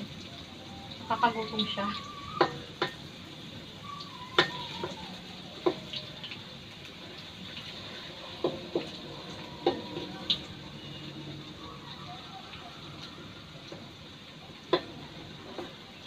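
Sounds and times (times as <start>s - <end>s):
potatoes sizzling in oil: 0.0s - 16.0s
wooden spatula knocking on wok: 5.6s - 5.9s.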